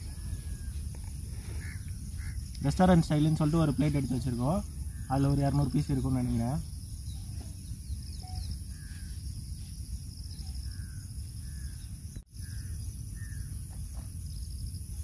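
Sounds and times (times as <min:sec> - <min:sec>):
short bird calls: 0:00.0 - 0:02.7
insects droning: 0:00.0 - 0:15.0.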